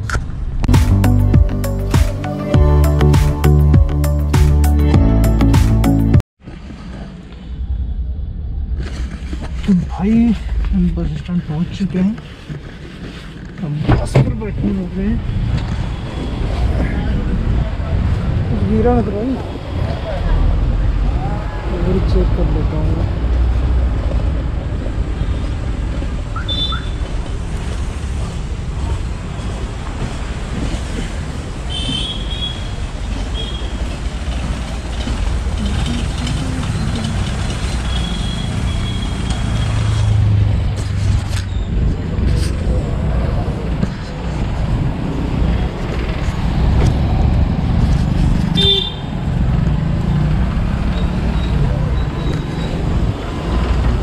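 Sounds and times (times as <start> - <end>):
road traffic rumble: 6.6 - 54.0
car horn toot: 26.4 - 27.0, 31.7 - 32.7, 48.5 - 49.1.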